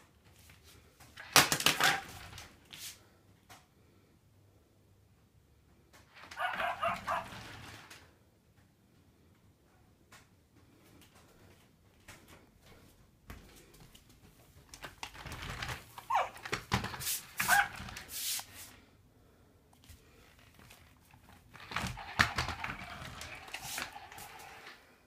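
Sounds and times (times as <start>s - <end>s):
electronic puppy sounds: 6.3s - 7.5s, 16.0s - 16.4s
toy mechanism clicking and knocking: 21.6s - 24.7s.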